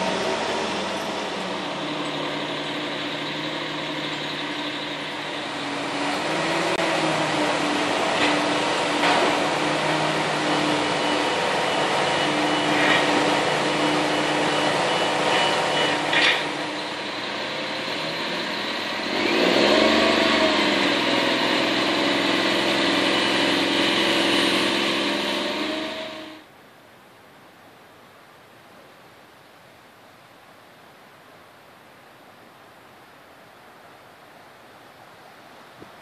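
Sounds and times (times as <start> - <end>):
construction machine engine: 0.0 - 26.4.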